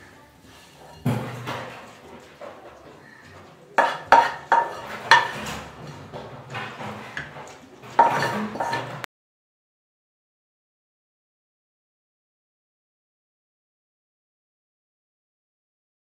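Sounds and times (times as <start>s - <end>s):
spoon scraping plate: 0.4s - 2.3s, 3.0s - 9.1s
metal spoon clinking on steel plate: 3.8s - 5.7s, 7.2s - 9.0s.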